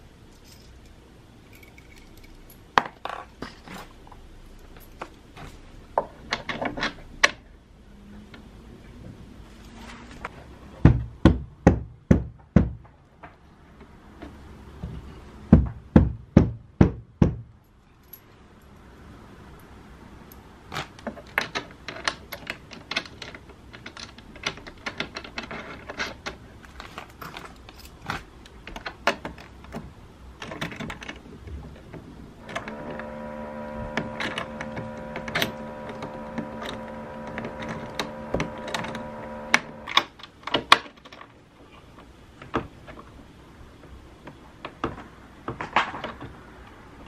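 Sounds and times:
metal fittings clicking and rattling: 0.4s - 2.6s
dull knocks on wooden frame: 10.8s - 12.9s, 15.5s - 17.5s.

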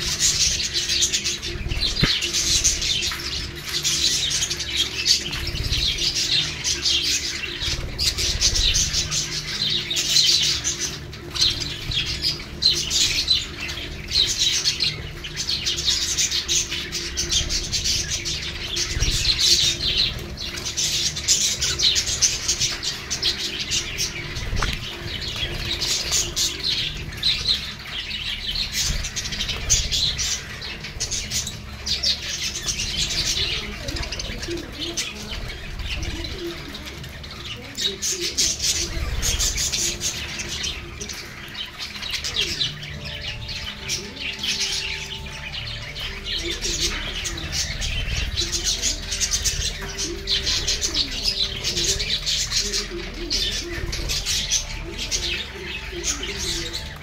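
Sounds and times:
budgerigars chattering: 0.0s - 57.0s
wings flapping: 15.8s - 42.9s.

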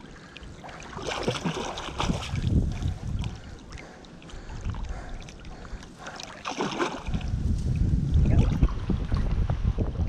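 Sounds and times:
wind rumbling on microphone: 0.0s - 10.0s
fish splashing at water surface: 6.2s - 7.2s.

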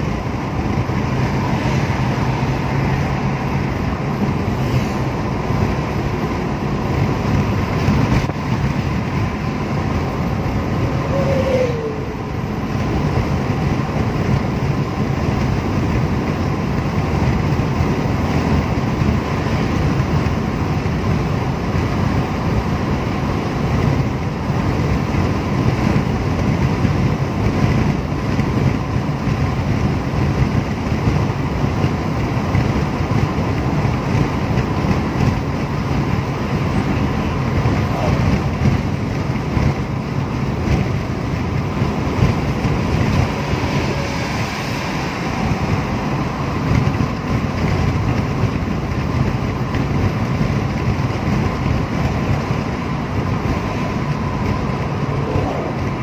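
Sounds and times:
car road noise: 0.0s - 56.0s
wind noise: 0.0s - 56.0s.

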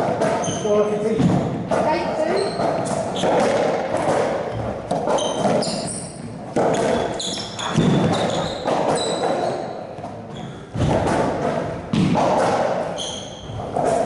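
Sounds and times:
court shoes squeaking: 0.0s - 14.0s
racquetball hitting walls: 0.0s - 14.0s.

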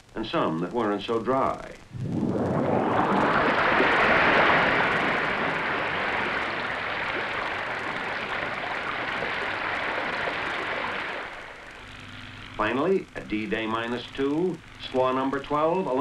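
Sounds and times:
seawater rushing and churning: 1.8s - 11.9s.

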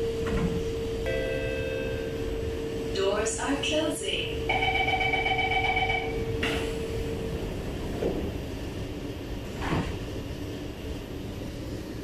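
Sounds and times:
train carriage rumble and hum: 0.0s - 12.0s.

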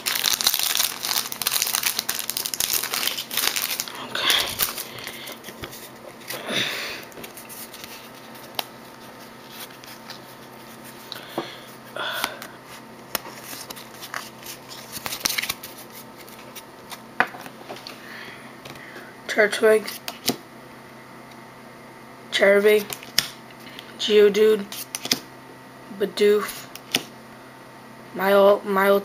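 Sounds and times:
trading cards rustling: 0.0s - 6.4s, 7.0s - 17.0s.

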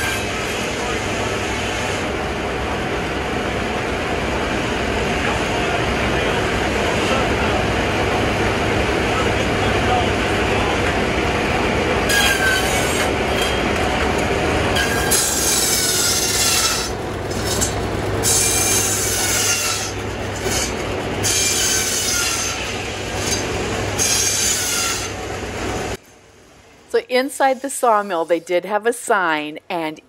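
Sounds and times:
circular saw cutting wood: 0.0s - 2.1s, 12.0s - 25.2s
mill machinery humming: 0.0s - 28.3s.

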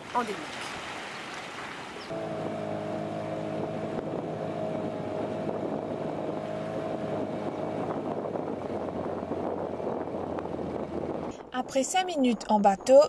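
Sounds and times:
wind: 0.0s - 13.0s
motorboat engine whine: 1.8s - 11.6s.

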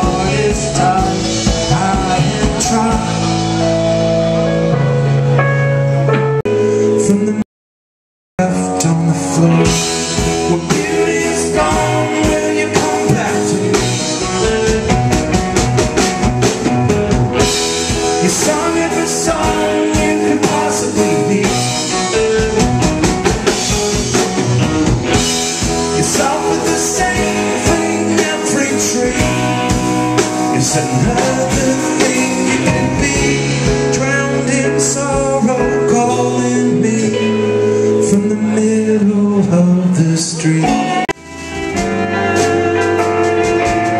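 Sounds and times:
drum kit steady beat: 0.0s - 3.8s, 9.6s - 34.3s, 41.1s - 43.9s
bass guitar: 0.0s - 7.4s, 8.4s - 43.9s
electric guitar: 0.0s - 7.4s, 8.4s - 43.9s
keyboard: 0.0s - 7.4s, 8.4s - 43.9s.

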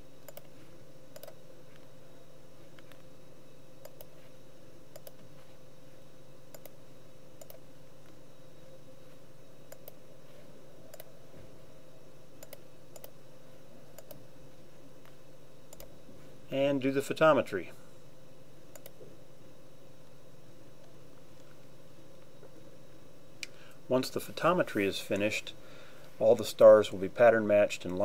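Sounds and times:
steady low hum: 0.0s - 28.0s
computer mouse clicking: 0.2s - 0.5s, 1.1s - 1.4s, 3.8s - 4.1s, 4.9s - 5.2s, 6.5s - 6.8s, 7.4s - 7.6s, 9.7s - 10.0s, 12.4s - 13.2s, 14.0s - 14.2s, 15.7s - 15.9s, 18.7s - 19.0s.

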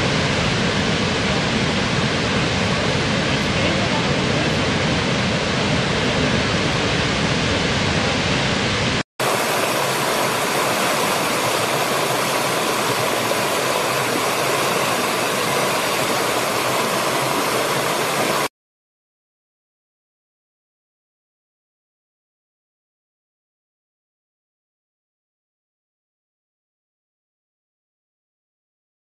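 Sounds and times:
waterfall roaring: 0.0s - 18.5s
stream splashing over rocks: 9.2s - 18.5s.

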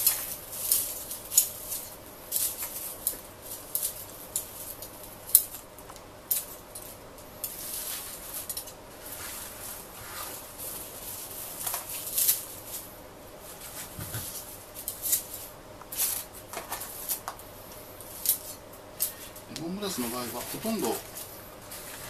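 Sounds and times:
cut grass rustling: 19.2s - 22.0s.

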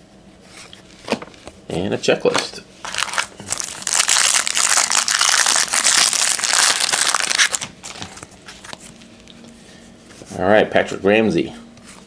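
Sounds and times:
foil wrapper crinkling: 2.8s - 8.3s.

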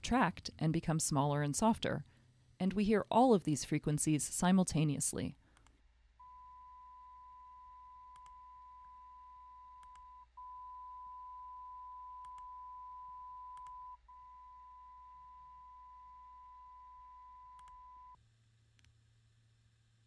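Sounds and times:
steady test tone from speaker: 6.2s - 18.2s.

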